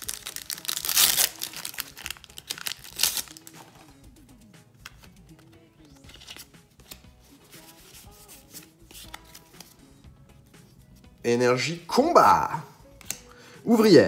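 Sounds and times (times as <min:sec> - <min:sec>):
foil wrapper crinkling: 0:00.0 - 0:03.8
handling of cards: 0:00.0 - 0:04.1, 0:04.8 - 0:09.9
soft background music: 0:00.0 - 0:14.0.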